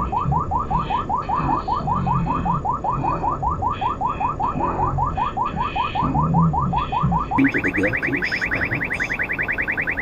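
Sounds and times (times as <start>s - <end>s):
radar detector rising chirps: 7.4s - 10.0s.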